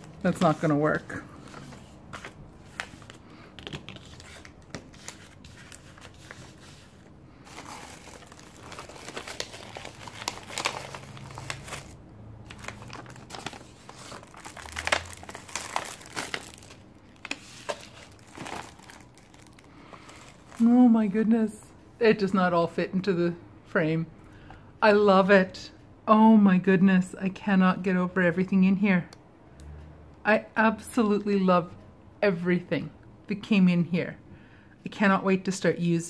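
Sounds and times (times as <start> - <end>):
cellophane crinkling: 0.0 - 20.7.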